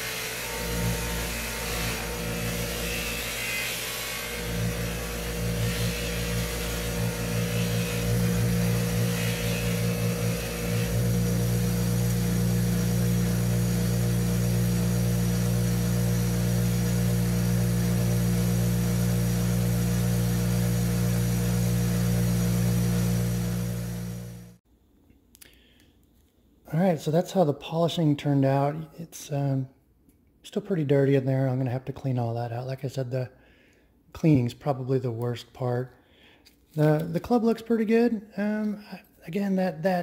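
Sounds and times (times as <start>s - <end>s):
bench grinder motor humming: 0.0s - 24.6s
buffing wheel rubbing metal: 4.4s - 24.2s.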